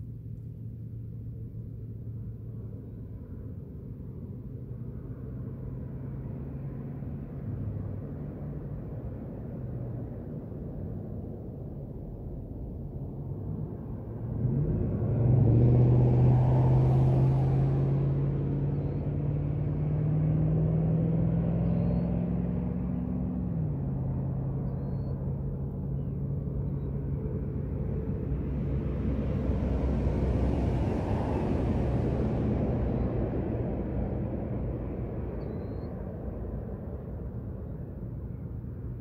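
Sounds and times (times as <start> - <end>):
vehicle engine humming: 0.0 - 39.0
car passing by: 14.0 - 39.0.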